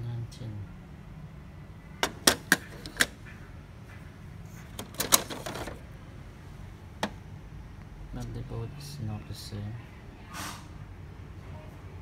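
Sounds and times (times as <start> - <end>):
rattling: 4.6 - 5.8.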